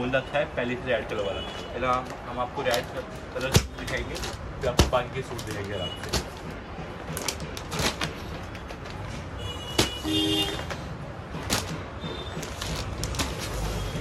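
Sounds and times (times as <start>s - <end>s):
plastic packaging crinkling: 1.5s - 14.0s.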